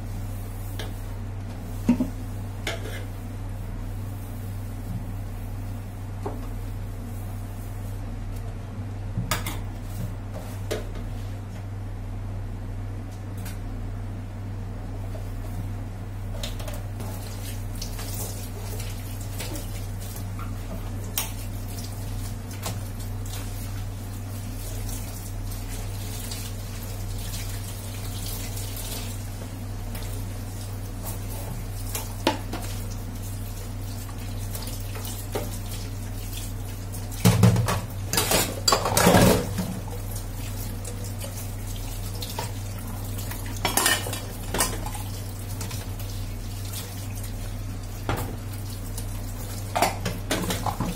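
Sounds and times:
steady low hum: 0:00.0 - 0:50.9
tap water running: 0:16.4 - 0:50.9
dishes clinking in sink: 0:37.2 - 0:39.9, 0:43.5 - 0:45.0.

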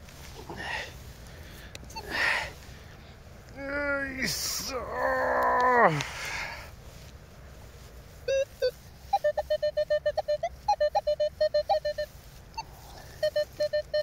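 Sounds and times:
metal detector beeping: 0:08.3 - 0:14.0.

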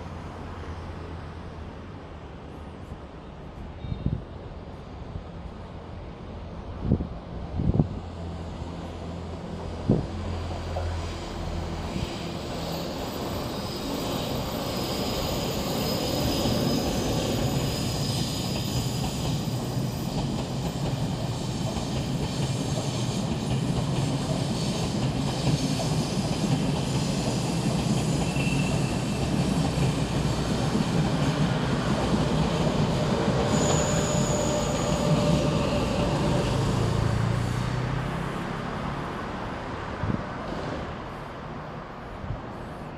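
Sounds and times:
train rumbling past: 0:00.0 - 0:42.9
wheel squeals: 0:27.1 - 0:29.9, 0:33.0 - 0:36.8.

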